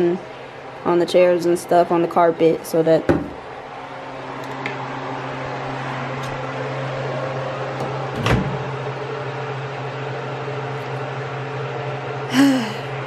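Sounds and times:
short vocal sound: 12.3s - 12.9s.

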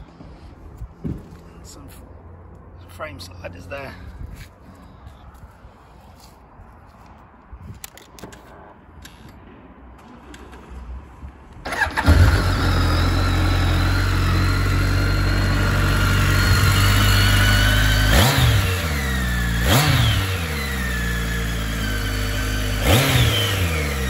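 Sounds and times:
motorcycle engine idling: 11.7s - 18.1s
engine revving: 11.7s - 24.0s.

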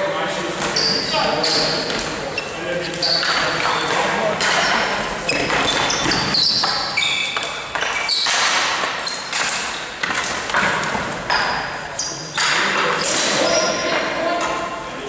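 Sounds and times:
shoes squeaking on floor: 0.4s - 14.4s
sticks knocking ball: 5.4s - 11.6s.

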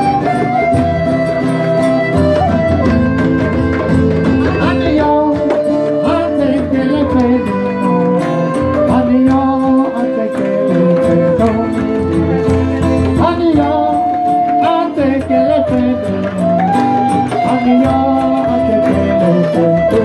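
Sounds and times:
djembe drums: 0.0s - 20.0s
strummed acoustic guitar: 0.0s - 20.0s
man singing: 4.3s - 20.0s.

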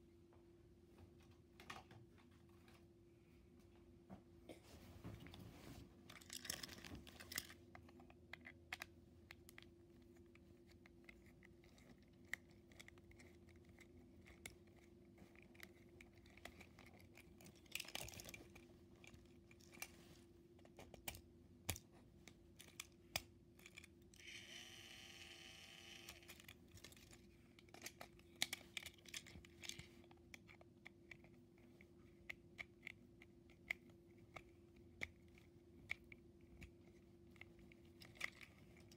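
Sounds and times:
plastic toy handling clicks: 6.1s - 9.7s, 15.5s - 19.9s, 20.6s - 31.4s.

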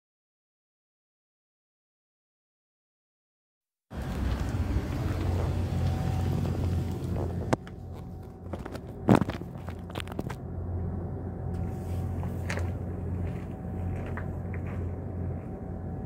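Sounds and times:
steady low hum: 3.9s - 16.0s
crunches on gravel: 4.0s - 10.4s, 12.2s - 15.0s.

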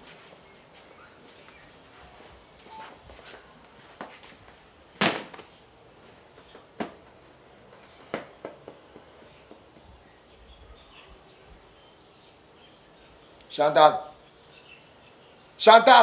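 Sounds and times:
knocks and thumps of movement: 6.4s - 7.2s.

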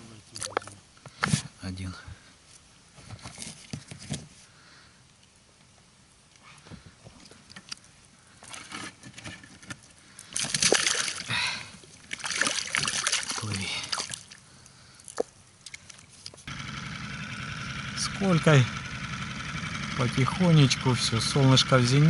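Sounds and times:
water splashing against boat: 10.3s - 14.4s.

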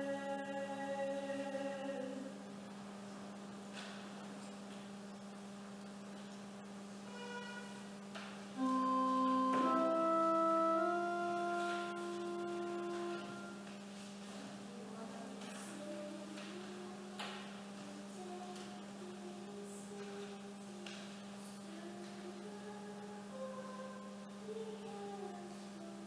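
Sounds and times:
faint hiss: 0.0s - 26.0s
steady low hum: 0.0s - 26.0s
held organ notes: 8.6s - 13.8s
soft rustle: 13.8s - 14.8s.

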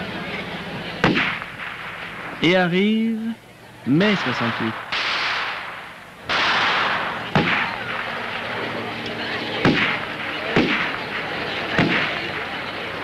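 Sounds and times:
sharp bangs with ringing tail: 1.0s - 2.9s, 3.9s - 12.3s
loud rushing noise burst: 3.9s - 8.9s.

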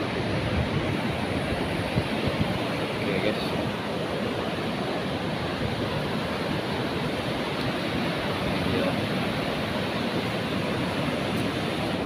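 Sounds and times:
ocean surf washing on beach: 0.0s - 12.0s.

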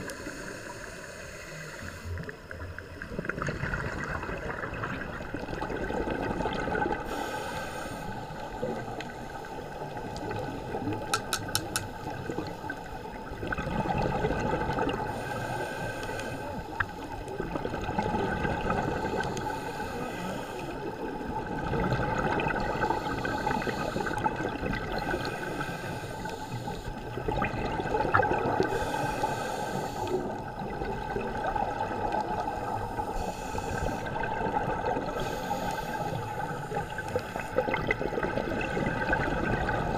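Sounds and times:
diver breathing underwater: 0.0s - 2.6s, 6.5s - 17.2s, 18.2s - 21.2s, 22.0s - 39.9s
watery hiss: 0.0s - 2.6s, 6.8s - 13.2s, 15.0s - 17.2s, 18.6s - 20.9s, 22.6s - 27.2s, 28.4s - 30.5s, 31.9s - 37.8s
bubbles gurgling: 2.6s - 7.2s, 8.2s - 15.5s, 16.7s - 19.7s, 20.9s - 39.9s
quick clicks: 11.1s - 12.0s.

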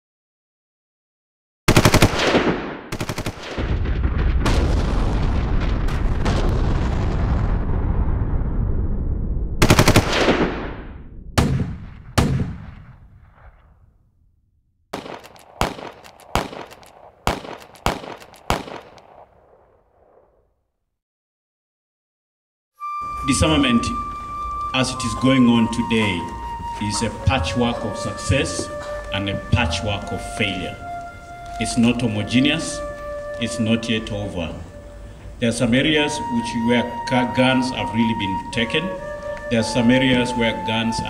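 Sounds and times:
automatic gunfire bursts: 1.7s - 3.6s, 9.6s - 10.6s, 15.0s - 19.1s
single gunshots echoing: 1.8s - 5.3s, 9.6s - 13.7s, 15.0s - 20.2s.

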